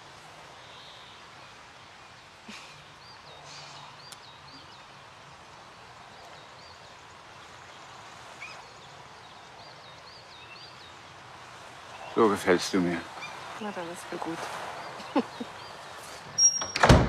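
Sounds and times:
steady low hiss: 0.0 - 17.0
soft rustle: 13.0 - 16.4
small bird chirping: 14.8 - 16.8.

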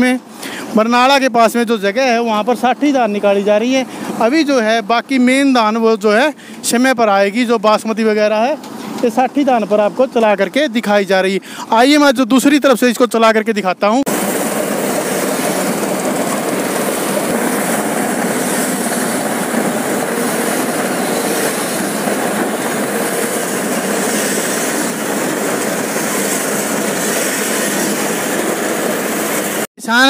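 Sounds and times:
combine harvester running: 14.1 - 30.0.

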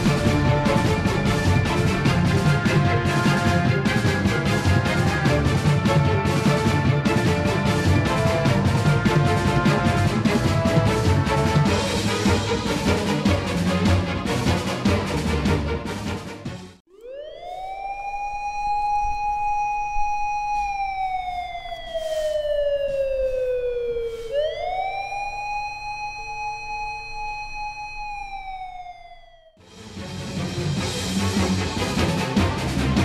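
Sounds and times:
police siren wailing: 0.0 - 12.0, 16.9 - 29.6
background music: 0.0 - 26.5, 29.6 - 33.0.

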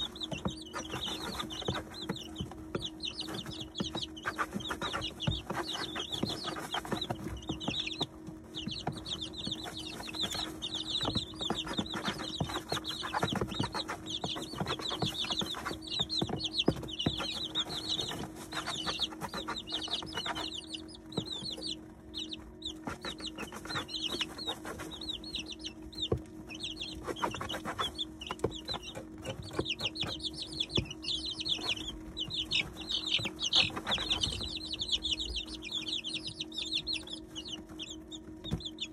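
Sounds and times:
beaks pecking at feed: 0.0 - 38.9
chicks peeping: 0.0 - 38.9
steady low hum: 0.0 - 38.9.

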